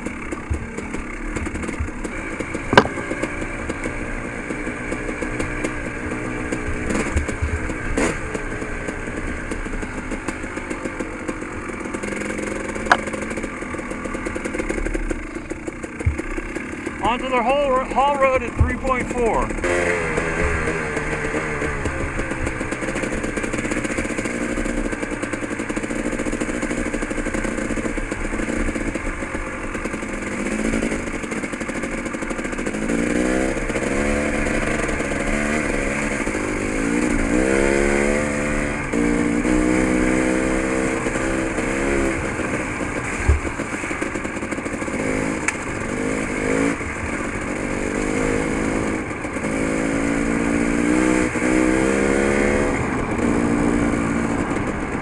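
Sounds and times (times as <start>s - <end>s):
dirt bike engine revving: 0.0s - 55.0s
sharp knock: 2.7s - 3.1s.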